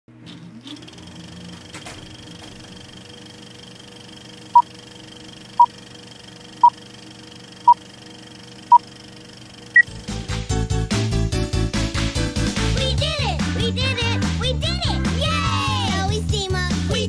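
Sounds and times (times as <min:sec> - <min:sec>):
music: 0:09.8 - 0:17.0.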